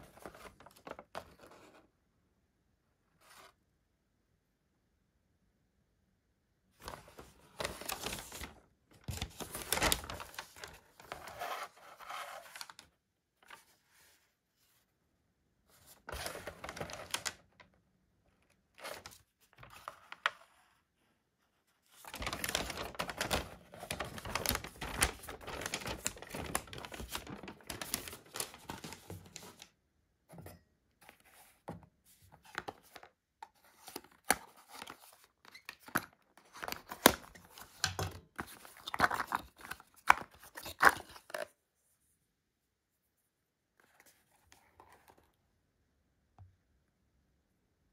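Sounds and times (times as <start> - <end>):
paper rustling and crinkling: 0.0 - 1.8, 6.8 - 14.9, 15.7 - 17.8, 18.5 - 29.8, 31.0 - 41.5.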